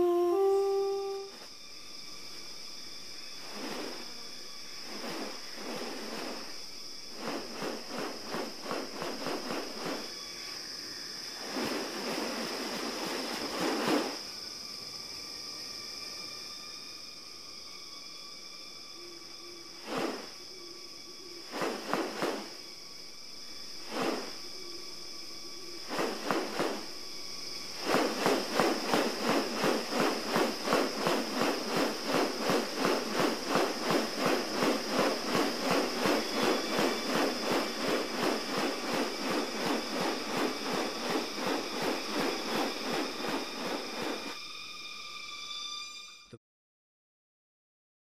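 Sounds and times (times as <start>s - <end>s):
insects buzzing: 0.0s - 46.3s
bird wings swishing: 3.4s - 10.6s, 11.2s - 14.2s, 19.8s - 20.4s, 21.4s - 22.6s, 23.8s - 24.4s, 25.8s - 27.0s, 27.6s - 44.4s.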